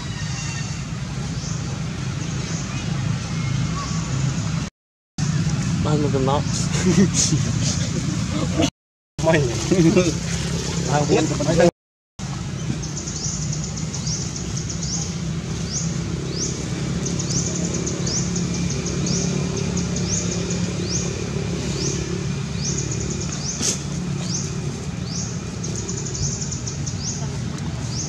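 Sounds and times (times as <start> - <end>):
steady low hum: 13.6 - 28.0.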